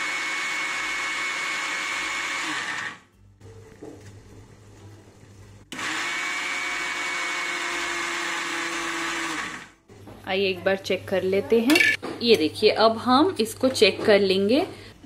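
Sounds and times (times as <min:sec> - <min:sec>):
mixer grinder motor whining: 0:00.0 - 0:03.0, 0:05.7 - 0:09.8.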